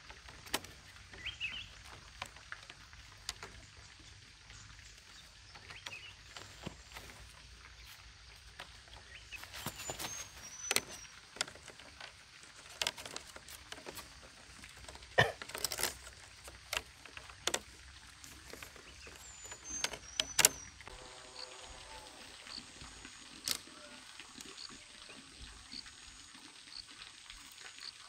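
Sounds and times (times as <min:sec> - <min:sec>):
bamboo strips clicking together: 0:00.0 - 0:07.6, 0:08.4 - 0:20.9.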